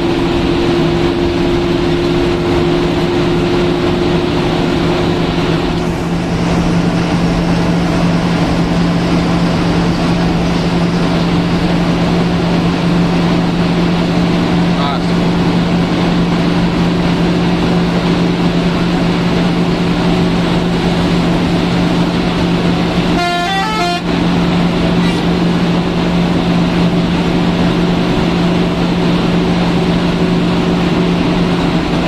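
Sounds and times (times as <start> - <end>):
bus engine and road noise: 0.0 - 32.0
musical horn: 23.1 - 24.2.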